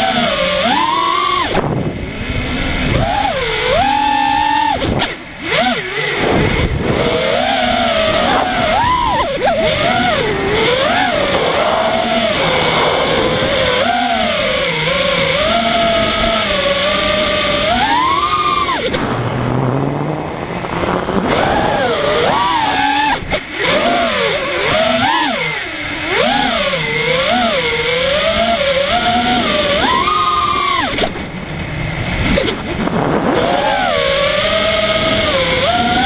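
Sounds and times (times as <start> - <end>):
drone motors whining: 0.0 - 36.0
wind rushing: 6.1 - 16.1, 18.8 - 23.3.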